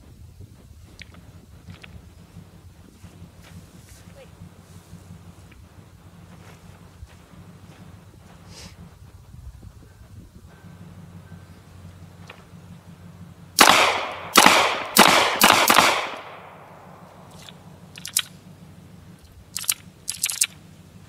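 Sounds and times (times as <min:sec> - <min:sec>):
faint clicks: 0:00.9 - 0:02.0, 0:17.3 - 0:18.4, 0:19.2 - 0:20.6
pistol shots with echo: 0:13.6 - 0:17.4.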